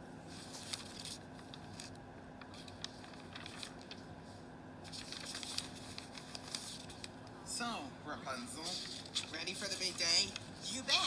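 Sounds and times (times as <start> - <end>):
faint low hum: 0.0 - 11.0
hair rustling and crackling: 0.3 - 4.1, 4.8 - 7.3.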